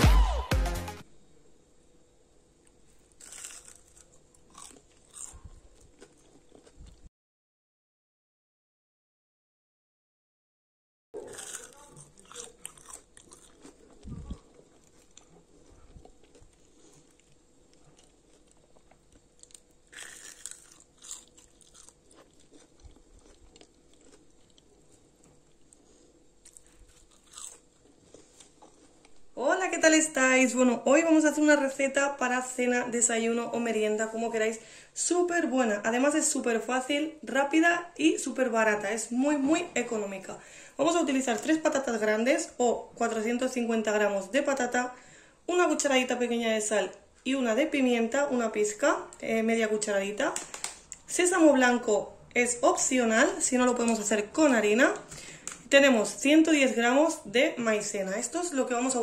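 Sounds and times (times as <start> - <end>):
chewing: 2.6 - 7.1, 11.2 - 29.2
crunching bites into crispy snack: 3.1 - 7.0, 11.2 - 15.3, 16.1 - 24.7, 26.4 - 28.6.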